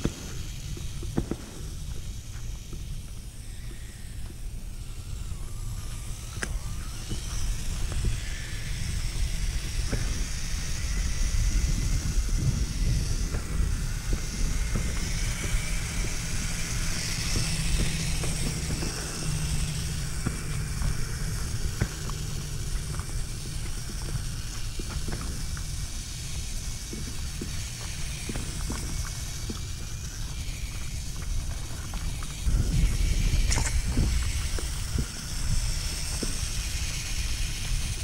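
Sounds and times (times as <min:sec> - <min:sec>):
electric motor whine: 0:00.0 - 0:38.0
steady low rumble: 0:00.0 - 0:38.0
ticks and crunches: 0:09.2 - 0:38.0.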